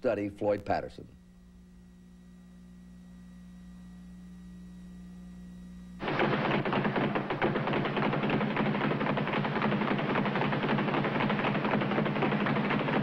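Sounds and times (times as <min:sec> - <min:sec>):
low hum: 0:00.0 - 0:08.2
punches on speed bag: 0:06.0 - 0:13.0.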